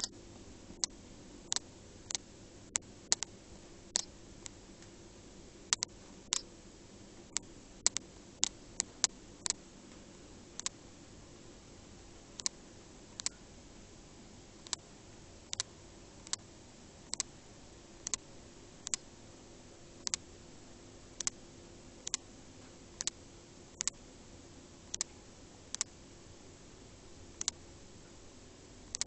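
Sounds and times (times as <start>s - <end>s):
faint steady hum: 0.0s - 29.0s
sharp clicks: 0.8s - 3.3s, 3.9s - 4.9s, 5.7s - 6.5s, 7.3s - 9.6s, 10.6s - 10.8s, 12.4s - 12.6s, 13.2s - 13.4s, 14.6s - 14.8s, 15.5s - 16.4s, 17.1s - 17.3s, 18.0s - 18.2s, 18.8s - 19.0s, 20.0s - 20.2s, 22.0s - 22.2s, 23.8s - 24.0s, 25.7s - 26.0s, 27.4s - 27.6s.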